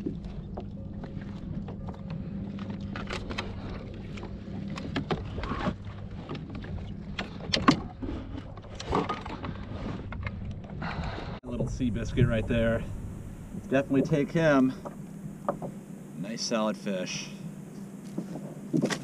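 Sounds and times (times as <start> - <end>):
knocks and clatter on a kayak: 0.0 - 10.8, 13.5 - 15.8, 18.0 - 19.0
steady low hum: 0.0 - 19.0.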